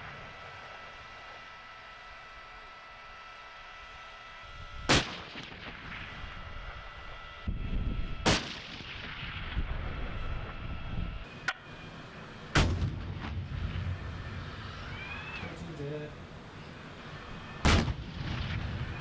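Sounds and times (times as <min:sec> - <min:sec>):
tank gun firing blasts: 0:04.9 - 0:06.8, 0:08.2 - 0:10.6, 0:12.5 - 0:14.2, 0:17.6 - 0:19.0.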